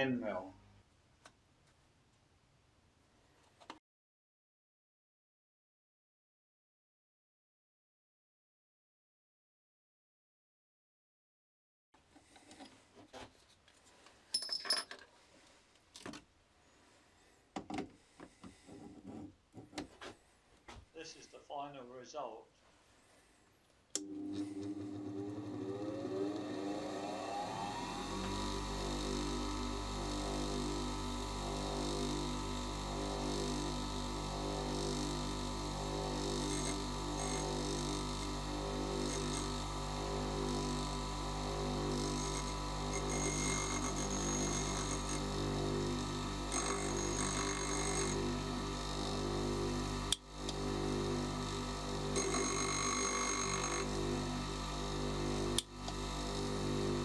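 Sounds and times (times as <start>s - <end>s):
bench grinder motor humming: 24.0s - 57.0s.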